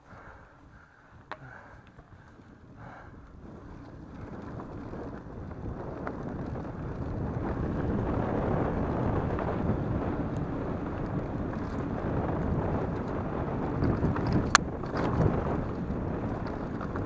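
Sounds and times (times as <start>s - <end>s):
bike tyre rumble: 0.0s - 17.0s
wind buffeting microphone: 0.0s - 17.0s
bike frame rattle: 1.0s - 8.2s, 11.2s - 17.0s.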